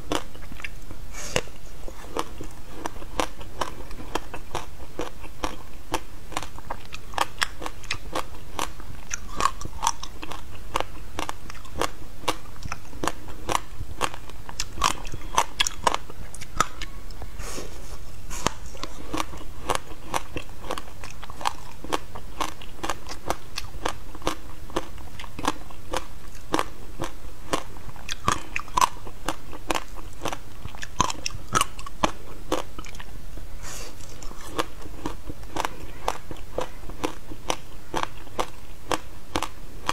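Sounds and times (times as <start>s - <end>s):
crunching ice while chewing: 0.1s - 0.8s, 1.4s - 16.9s, 18.4s - 33.1s, 34.0s - 39.9s.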